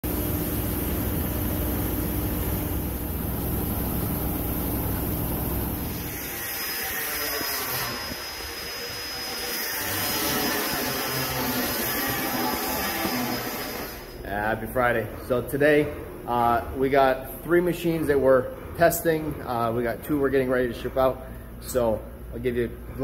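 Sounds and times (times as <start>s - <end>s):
machinery deep rumble: 0.1s - 6.1s
machinery high-pitched hiss: 5.8s - 14.4s.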